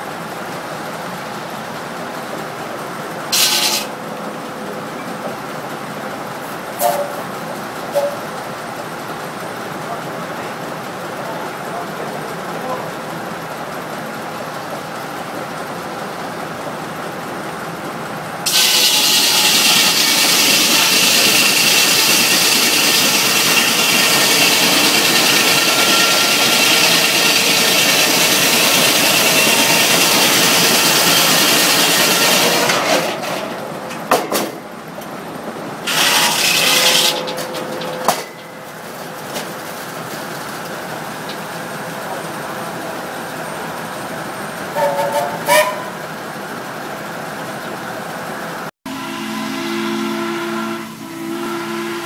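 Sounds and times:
mill machinery humming: 0.0s - 52.0s
circular saw blade cutting log: 3.3s - 4.0s, 18.5s - 33.6s, 35.8s - 38.4s.

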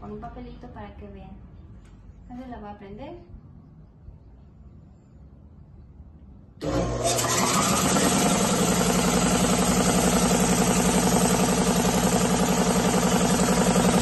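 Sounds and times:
air compressor running: 6.6s - 14.0s.

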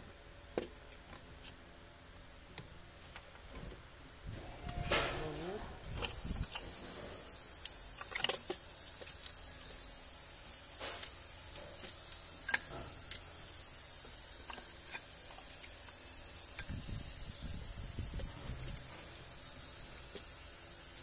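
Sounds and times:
steady high-pitched hiss: 5.9s - 21.0s.

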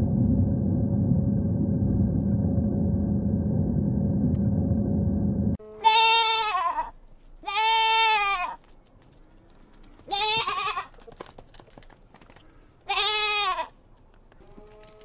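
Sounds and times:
low rumble: 0.0s - 5.6s
goat bleating: 5.6s - 8.6s, 10.1s - 11.0s, 12.9s - 13.7s.

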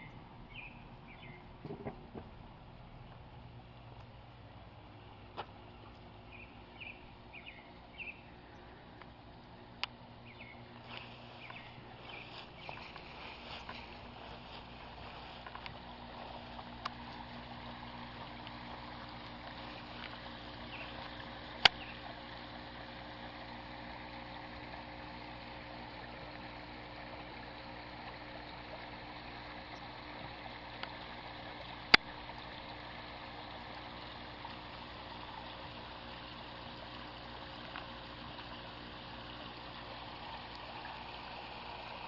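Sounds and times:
bird chirps: 0.0s - 1.5s, 6.3s - 8.7s, 10.2s - 13.9s, 20.7s - 21.0s, 21.7s - 22.0s
low steady hum: 0.0s - 42.0s
water trickling and splashing: 5.2s - 42.0s.

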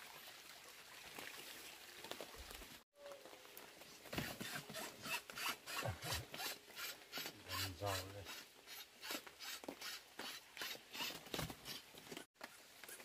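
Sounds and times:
duck struggling raspy strokes: 4.4s - 11.9s.

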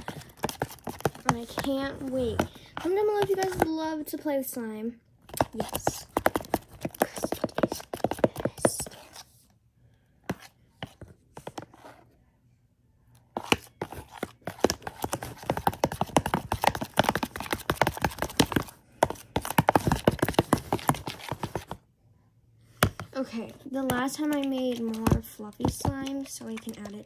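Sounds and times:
spoon stirring sticky slime: 0.0s - 4.0s, 5.3s - 9.4s, 13.3s - 21.8s, 23.6s - 27.0s.

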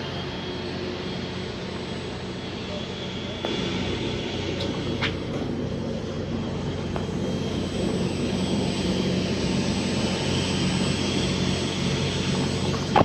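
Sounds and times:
boat diesel engines droning: 0.0s - 13.0s.

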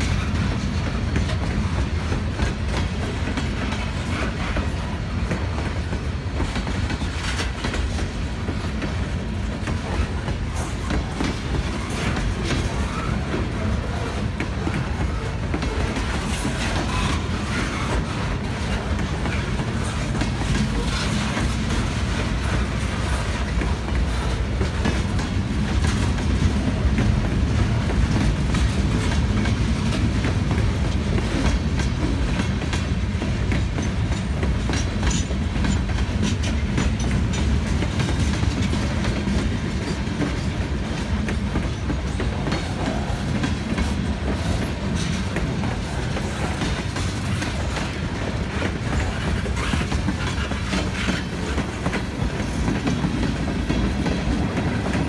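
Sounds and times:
train wheels rumbling on rails: 0.0s - 55.0s
wheels clacking over rail joints: 0.0s - 55.0s.

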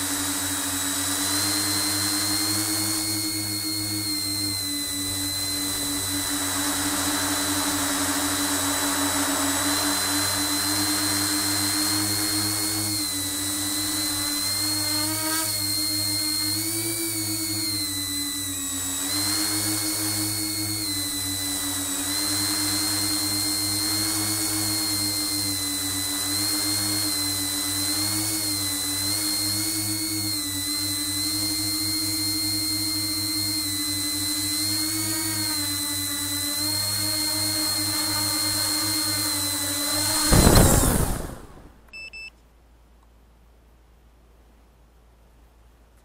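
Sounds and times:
drone motors whining: 0.0s - 42.3s
short electronic beeps: 41.9s - 42.4s.

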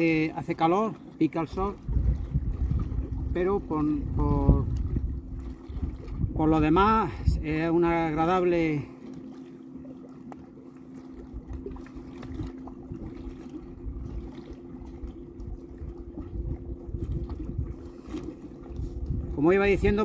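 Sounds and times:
ripples lapping at shore: 0.0s - 20.0s
steady low hum: 0.0s - 20.0s
wind buffeting microphone: 1.5s - 8.7s, 11.3s - 20.0s.

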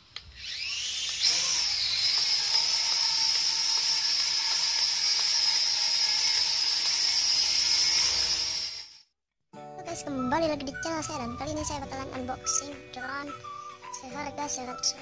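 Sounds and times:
toy drone propellers whining: 0.0s - 9.1s.

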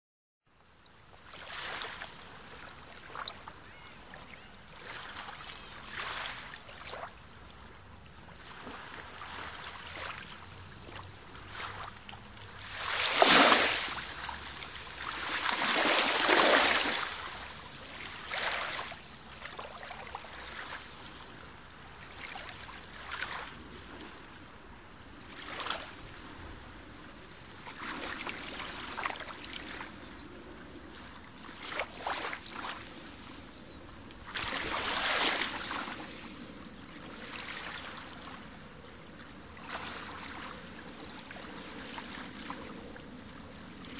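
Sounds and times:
sea waves rushing: 8.3s - 24.3s, 34.3s - 38.8s.

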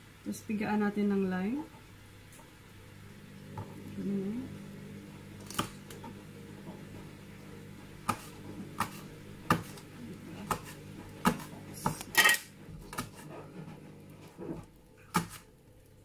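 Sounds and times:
knife chopping on plastic board: 8.0s - 12.1s, 12.7s - 13.3s, 15.1s - 15.5s.

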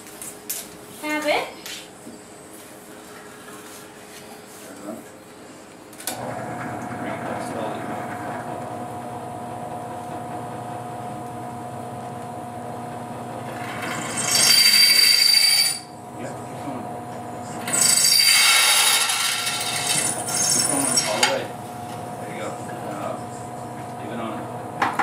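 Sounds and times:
drill press motor running: 6.1s - 25.0s
drill bit screeching in iron: 13.8s - 15.9s, 17.6s - 21.5s.

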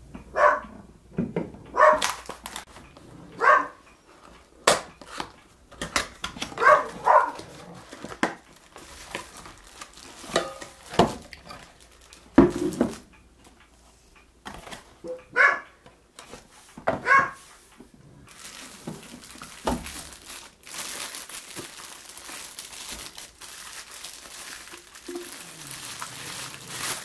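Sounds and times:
dog yipping: 0.3s - 0.7s, 1.7s - 2.1s, 3.4s - 3.8s, 6.6s - 7.4s, 15.3s - 15.7s, 17.0s - 17.4s
cardboard and plastic rustling: 1.9s - 3.1s, 4.1s - 13.1s, 14.5s - 15.0s, 18.3s - 27.0s.

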